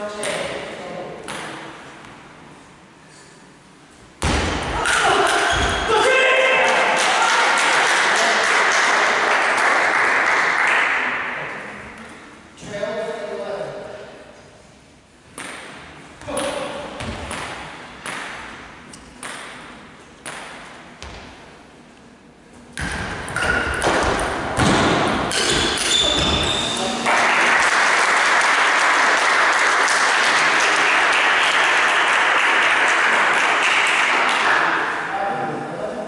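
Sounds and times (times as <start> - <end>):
audience applause: 6.7 - 11.1, 27.1 - 34.6
ping pong ball strikes: 19.0 - 20.7.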